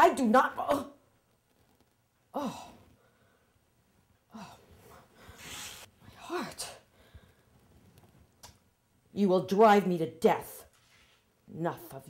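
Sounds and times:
woman gasping and sighing: 0:02.3 - 0:03.3, 0:04.3 - 0:05.5
woman groaning: 0:02.4 - 0:02.8.

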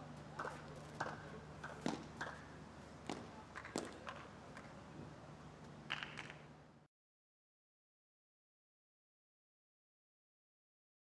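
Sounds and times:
low steady hum: 0:00.0 - 0:06.9.

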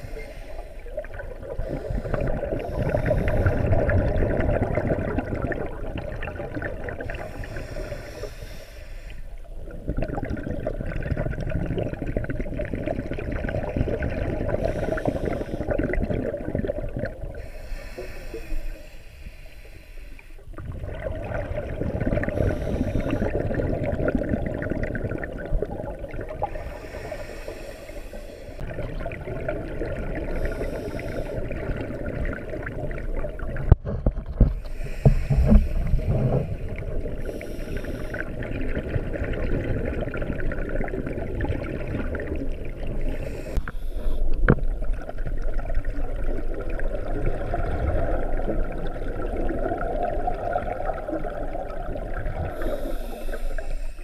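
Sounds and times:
diver's regulator breathing: 0:00.0 - 0:04.1, 0:07.0 - 0:09.4, 0:14.5 - 0:15.9, 0:17.3 - 0:20.5, 0:22.2 - 0:23.6, 0:26.4 - 0:28.6, 0:30.3 - 0:31.7, 0:34.5 - 0:38.5, 0:43.0 - 0:44.5, 0:52.4 - 0:54.0
exhaled bubbles gurgling: 0:00.0 - 0:19.8, 0:20.4 - 0:54.0
steady low underwater rumble: 0:00.0 - 0:54.0
sharp knocks underwater: 0:33.6 - 0:36.6, 0:44.4 - 0:44.8.

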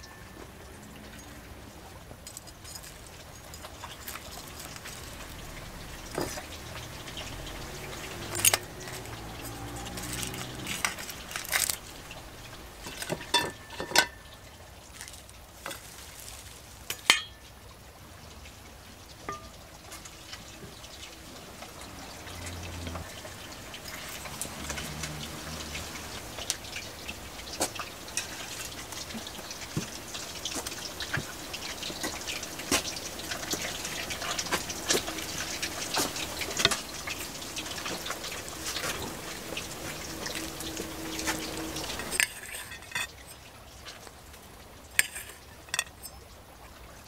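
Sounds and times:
spoon stirring thick sauce: 0:02.4 - 0:12.0, 0:45.0 - 0:46.2
wet sticky sounds: 0:02.5 - 0:13.1.

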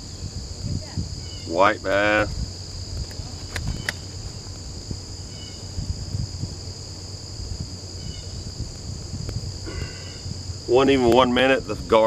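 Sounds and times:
insect chorus shrilling: 0:00.0 - 0:12.0
low rumbling: 0:00.0 - 0:12.0.

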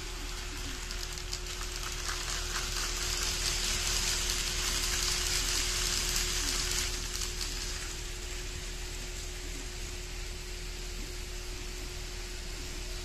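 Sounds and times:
model train wheels rattling on rails: 0:00.0 - 0:08.0
steady hum: 0:00.0 - 0:13.0.

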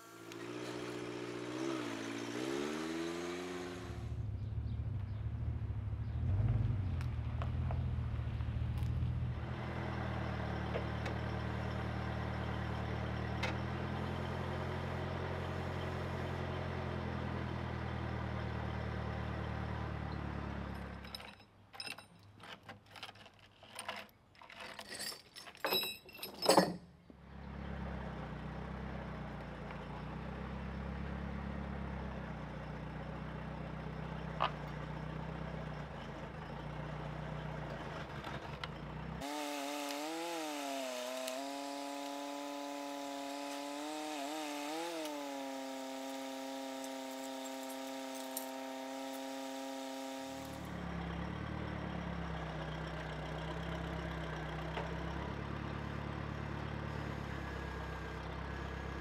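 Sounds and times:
engine idling: 0:46.7 - 0:59.0.

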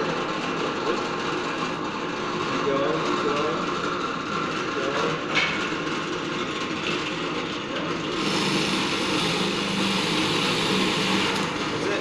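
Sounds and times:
drill press motor running: 0:08.0 - 0:12.0
drill bit boring into wood: 0:08.1 - 0:12.0.

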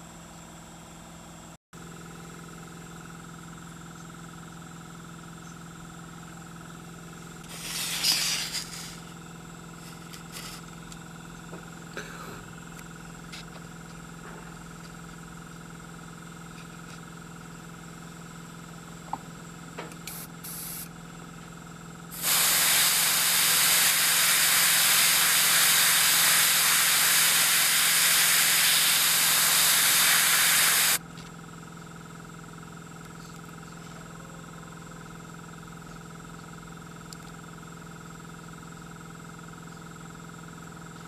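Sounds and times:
airbrush hissing: 0:07.5 - 0:09.1, 0:20.1 - 0:20.9, 0:22.1 - 0:31.0.

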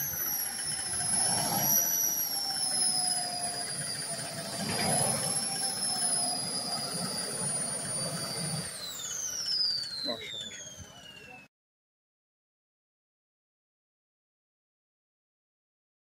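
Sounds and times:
model boat motor whine: 0:00.0 - 0:11.5.

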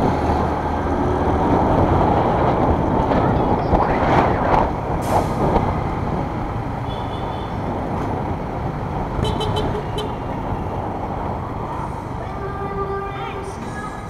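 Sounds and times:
vehicle horn tooting: 0:09.2 - 0:10.2.

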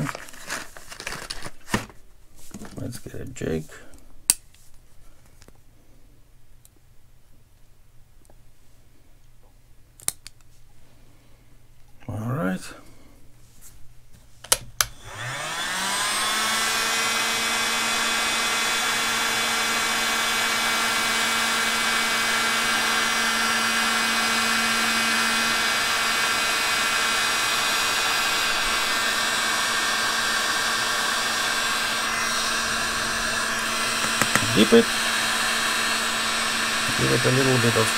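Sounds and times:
heat gun fan blowing: 0:14.8 - 0:37.9.

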